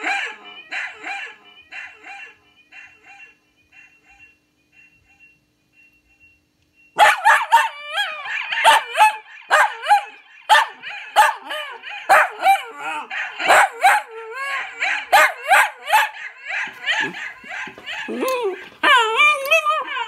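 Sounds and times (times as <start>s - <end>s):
small dog barking and yelping: 7.0s - 20.0s.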